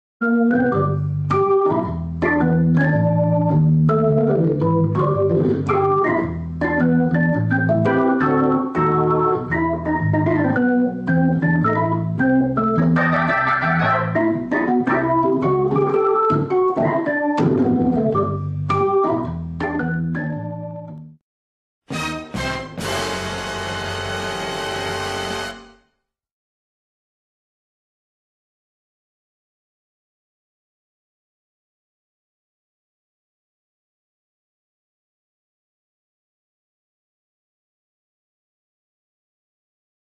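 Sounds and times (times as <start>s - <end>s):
organ-like keyboard music: 0.2s - 21.2s, 21.9s - 25.8s.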